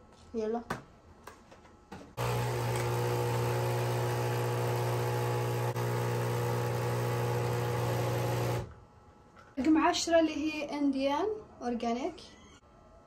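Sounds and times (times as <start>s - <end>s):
coffee machine pump humming: 2.2s - 8.7s.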